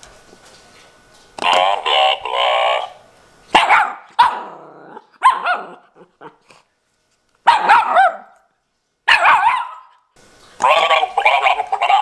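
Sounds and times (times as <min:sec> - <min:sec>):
puppy barking: 0:03.5 - 0:06.4, 0:07.4 - 0:08.5, 0:09.1 - 0:10.0, 0:10.6 - 0:12.0.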